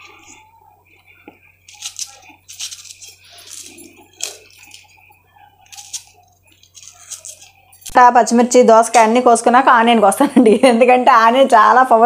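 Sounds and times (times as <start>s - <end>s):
knife cutting chillies: 1.6s - 7.9s.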